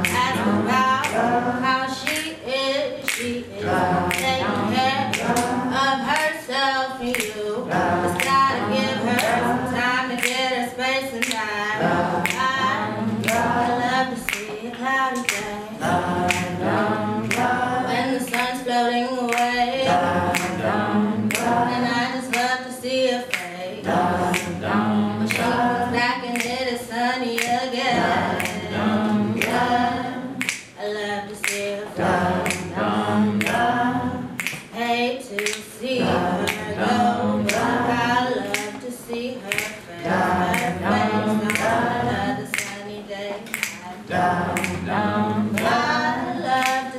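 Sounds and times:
sharp clicks keeping a beat: 0.0s - 2.3s, 4.0s - 6.4s, 7.0s - 10.5s, 11.1s - 22.6s, 23.3s - 26.7s, 27.4s - 34.7s, 35.4s - 46.9s
voices singing along: 0.0s - 46.9s
woman singing with vibrato: 0.0s - 46.9s.

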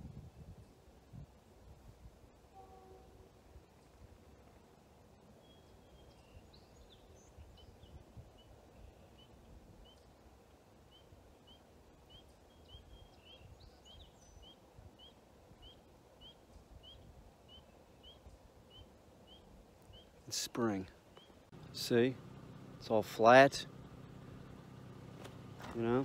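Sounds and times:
bird rising chirp: 5.3s - 10.2s, 10.8s - 25.6s
scattered bird chirps: 10.8s - 21.8s.

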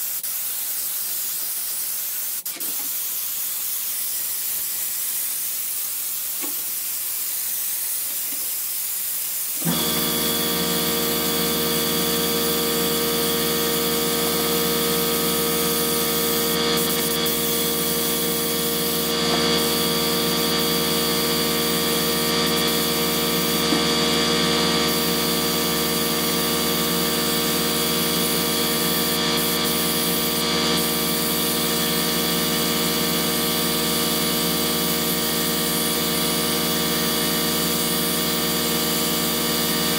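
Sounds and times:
spray gun hissing: 0.0s - 39.9s
air compressor humming: 9.5s - 39.9s.

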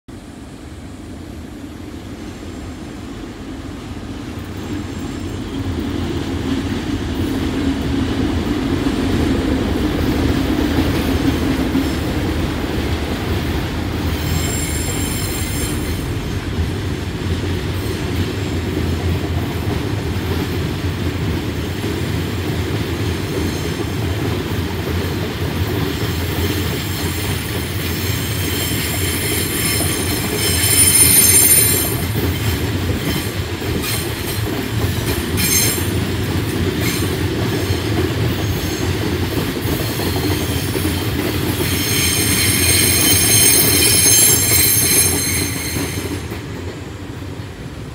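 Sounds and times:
freight train wagons rumbling: 0.1s - 47.9s
high wheel squeal: 14.1s - 16.2s, 28.0s - 32.6s, 41.5s - 46.3s.

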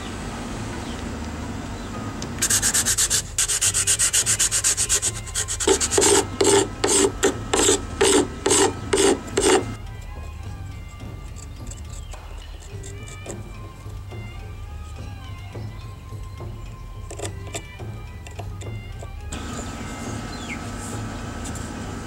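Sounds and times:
knife scraping wood: 2.4s - 9.8s, 11.0s - 13.7s, 17.1s - 19.2s.

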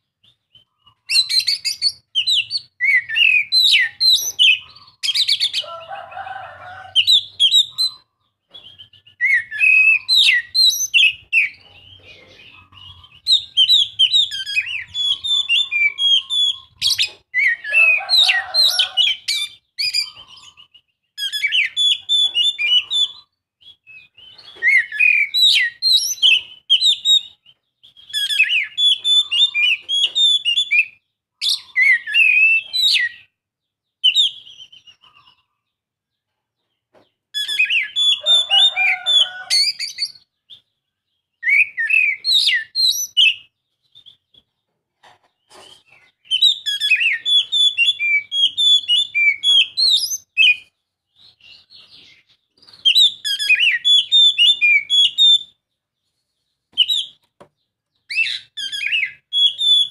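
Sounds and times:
bird singing whistled phrases: 0.2s - 5.6s, 7.0s - 11.6s, 12.8s - 33.3s, 37.4s - 40.6s, 41.4s - 44.4s, 46.2s - 55.6s, 58.1s - 59.9s.

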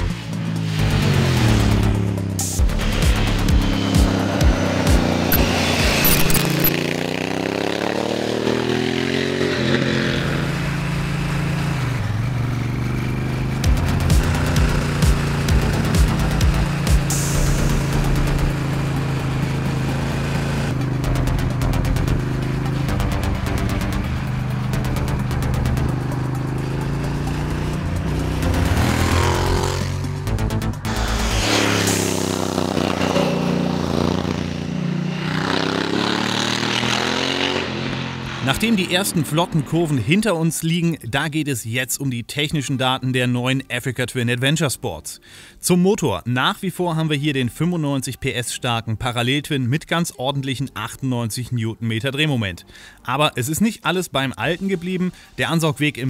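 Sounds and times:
music with a beat: 0.0s - 6.7s, 13.6s - 18.6s, 21.0s - 31.0s
motorcycle engine: 0.0s - 40.2s.

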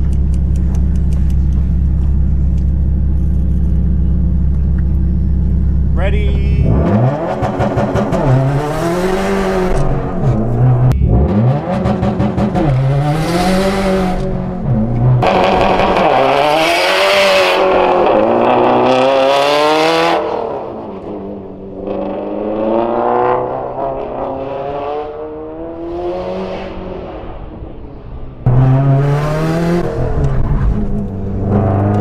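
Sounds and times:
car engine revving: 0.0s - 32.0s.

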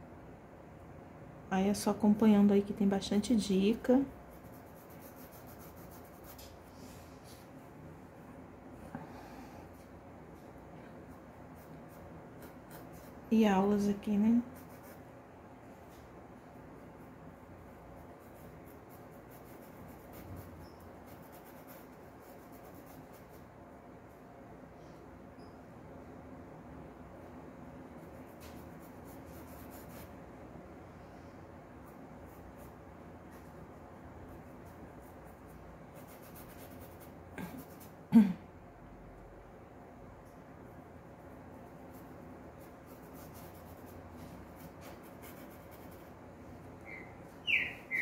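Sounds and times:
low steady hum: 0.0s - 48.0s
paintbrush scratching on cloth: 4.1s - 7.5s, 11.1s - 13.3s, 14.4s - 15.1s, 16.8s - 23.6s, 28.0s - 30.2s, 34.3s - 38.0s, 41.5s - 46.2s
person clearing throat: 37.4s - 38.5s.

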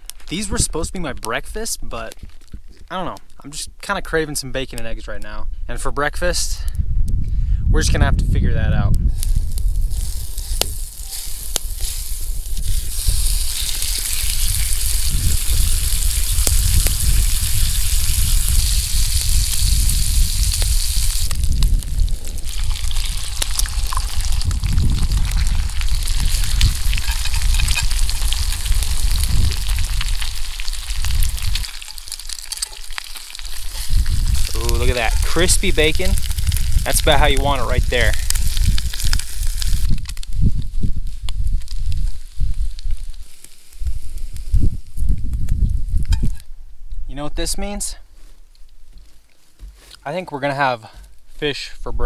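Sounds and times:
wind rumble on microphone: 4.9s - 31.9s, 33.4s - 47.1s
bacon sizzling in a pan: 9.1s - 45.1s.

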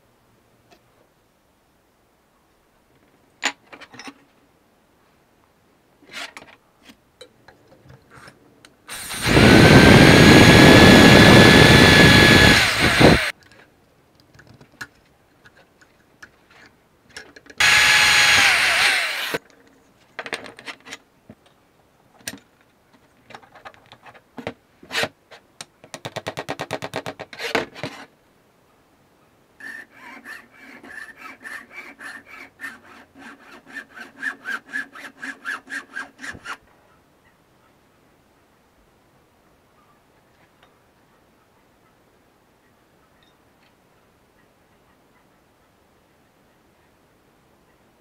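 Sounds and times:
electric drill whining: 8.9s - 13.3s, 17.6s - 19.4s.

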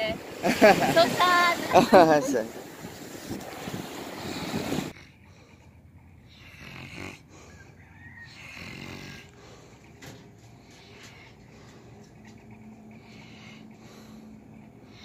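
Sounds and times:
wind and surf noise: 0.0s - 4.9s
man snoring: 6.3s - 7.4s, 8.2s - 9.5s.

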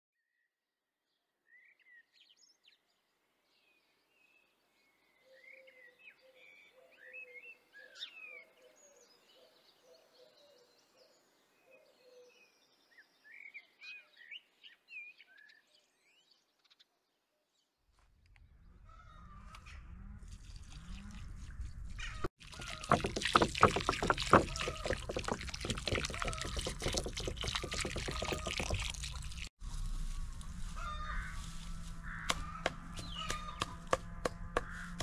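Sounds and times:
songbirds chirping: 1.1s - 35.0s
low bird call: 30.2s - 35.0s.

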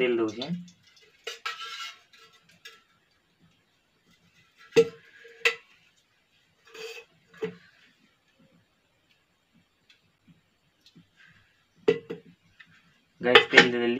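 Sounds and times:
spoon scraping metal container: 0.3s - 3.0s, 6.6s - 7.8s.

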